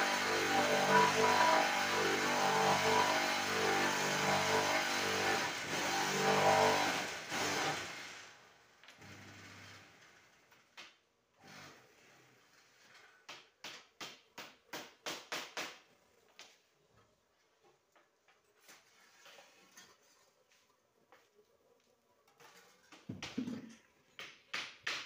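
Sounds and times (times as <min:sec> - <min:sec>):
electric vibrator motor running: 0:00.0 - 0:07.8.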